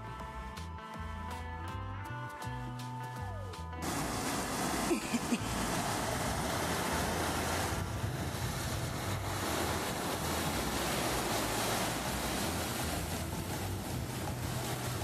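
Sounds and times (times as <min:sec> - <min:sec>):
river rapids rushing: 0:03.8 - 0:15.0.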